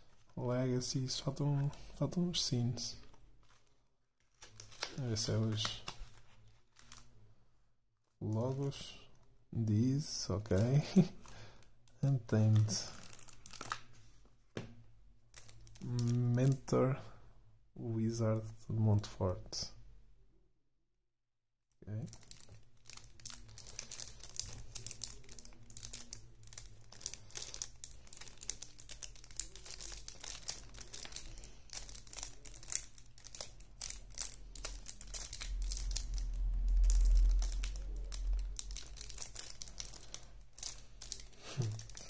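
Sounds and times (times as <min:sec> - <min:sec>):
plastic wrap crinkling and tearing: 0:03.0 - 0:07.2, 0:10.2 - 0:14.3, 0:15.3 - 0:16.7, 0:21.9 - 0:42.0
low rumble: 0:34.8 - 0:40.0.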